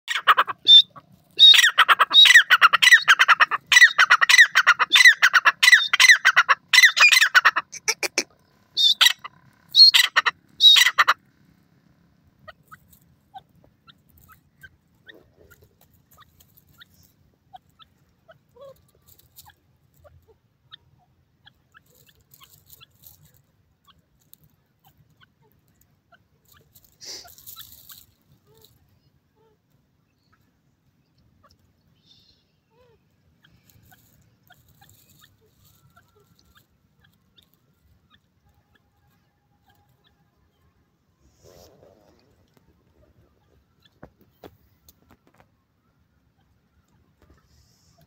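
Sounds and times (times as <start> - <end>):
bird calling harsh notes: 0.1 - 11.3
faint ticks and rustles in grass: 11.2 - 48.0.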